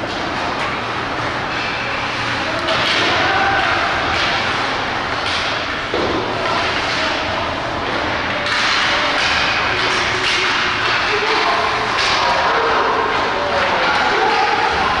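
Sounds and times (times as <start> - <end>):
ice hockey play noise: 0.0 - 15.0
faint indistinct shouts: 2.4 - 4.3.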